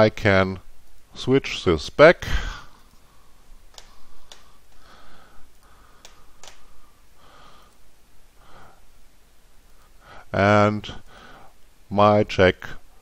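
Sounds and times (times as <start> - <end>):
faint breathing: 2.3 - 9.0, 9.7 - 11.6
computer mouse clicks: 3.7 - 4.8, 5.5 - 6.7.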